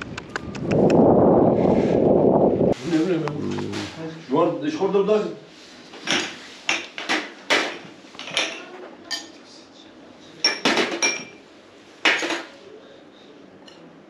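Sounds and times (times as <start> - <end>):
spoons clinking on dishes: 8.2 - 9.4.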